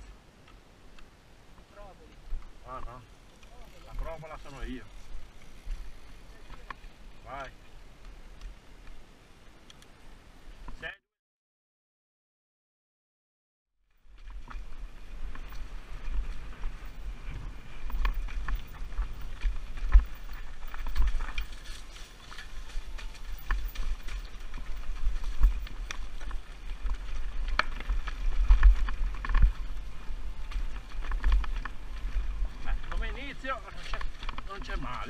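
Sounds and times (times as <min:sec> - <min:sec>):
wind rumble on microphone: 0:14.0 - 0:35.0
bike clattering over rocks: 0:14.2 - 0:35.0.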